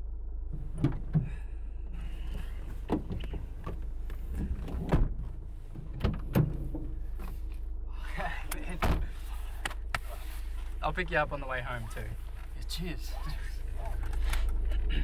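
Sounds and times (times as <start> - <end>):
engine hum: 0.0 - 15.0
car door clunks: 0.5 - 1.4, 2.2 - 7.4, 8.7 - 9.8.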